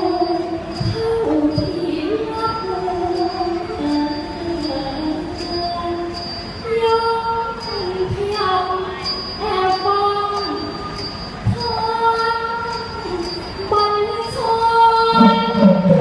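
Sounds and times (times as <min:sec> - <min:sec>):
woman singing: 0:00.0 - 0:10.9, 0:11.5 - 0:16.0
high metallic tick: 0:00.0 - 0:15.6
low pitched sound: 0:15.1 - 0:16.0.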